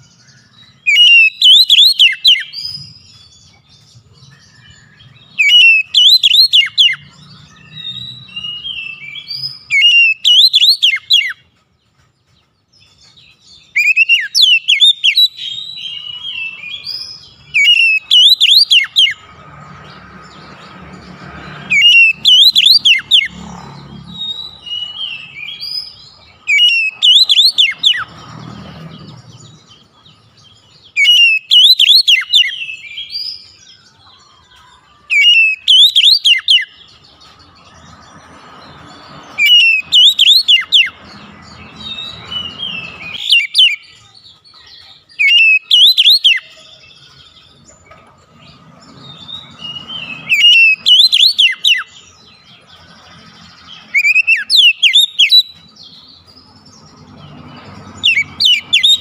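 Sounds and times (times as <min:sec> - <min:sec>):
magpie-robin singing: 0:00.0 - 0:59.0.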